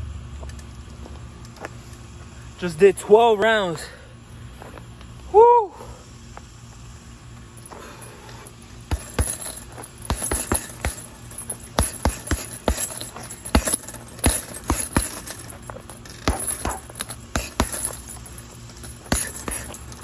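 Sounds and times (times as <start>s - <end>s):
punches smacking heavy bag: 8.8s - 20.0s.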